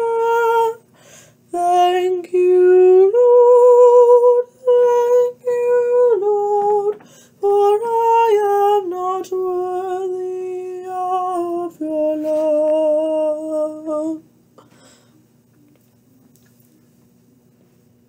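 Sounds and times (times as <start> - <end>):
woman singing gospel: 0.0 - 0.9, 1.5 - 14.2.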